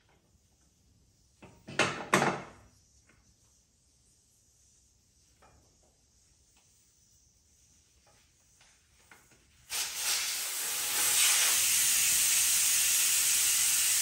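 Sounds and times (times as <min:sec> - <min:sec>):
air hissing from tire valve: 0:05.8 - 0:14.0.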